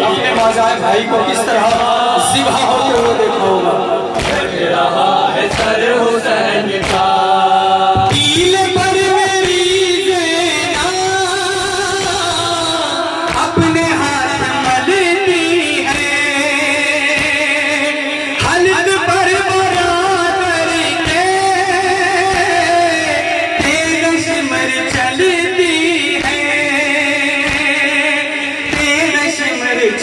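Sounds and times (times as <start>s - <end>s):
man chanting a lament: 0.0s - 30.0s
chest-beating slaps: 0.1s - 4.7s, 5.4s - 7.2s, 17.0s - 17.6s, 27.4s - 28.0s.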